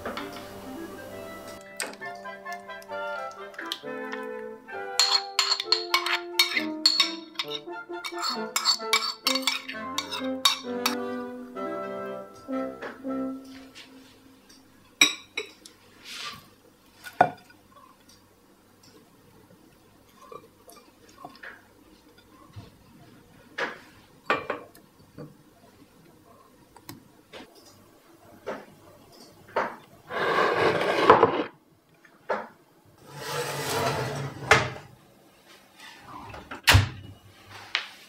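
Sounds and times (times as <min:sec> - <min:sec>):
scraping on ceramic dish: 0:05.0 - 0:11.0, 0:30.1 - 0:31.5, 0:33.0 - 0:34.8.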